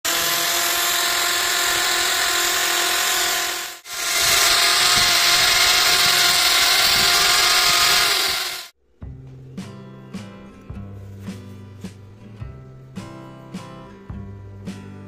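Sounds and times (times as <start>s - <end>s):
drill motor whine: 0.1s - 8.7s.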